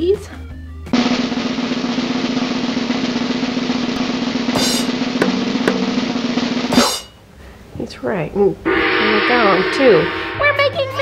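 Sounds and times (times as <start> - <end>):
drum roll: 1.0 - 7.2.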